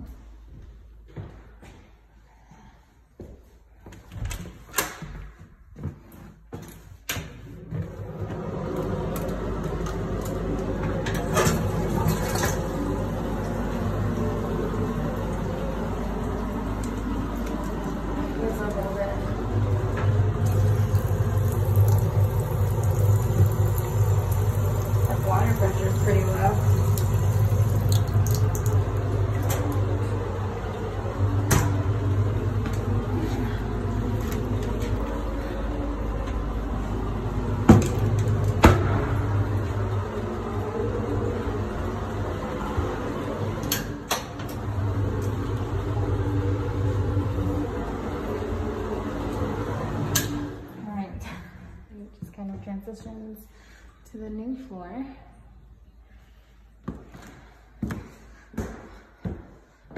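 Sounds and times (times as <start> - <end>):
toilet water rushing: 8.1 - 50.7
steady low hum: 8.6 - 56.8.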